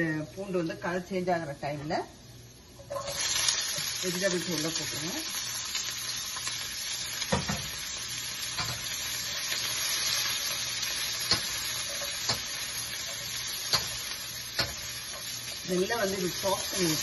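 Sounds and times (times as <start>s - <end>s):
vegetables sizzling in oil: 0.0s - 17.0s
spatula scraping a wok: 8.6s - 15.6s.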